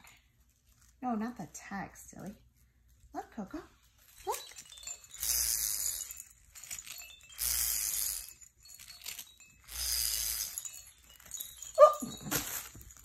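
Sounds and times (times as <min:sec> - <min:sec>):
baby rattle shaking: 0:03.7 - 0:13.0.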